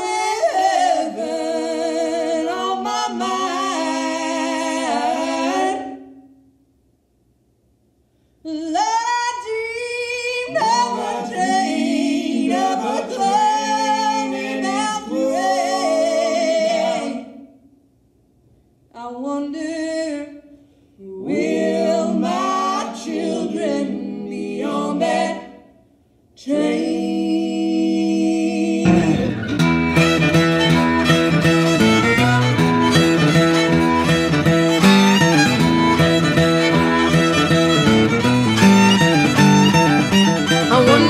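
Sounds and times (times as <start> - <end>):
group singing in harmony: 0.0 - 6.2, 10.4 - 17.5, 21.0 - 25.8, 26.4 - 29.5, 40.5 - 41.0
bluegrass band instruments: 28.9 - 41.0.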